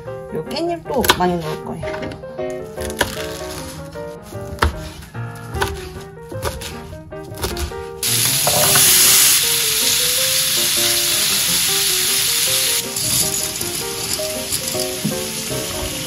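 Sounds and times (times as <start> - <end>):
soft background music: 0.0 - 16.0
boiling water hiss: 8.0 - 16.0
meat sizzling in a frying pan: 8.0 - 16.0
chopsticks stirring: 12.8 - 16.0.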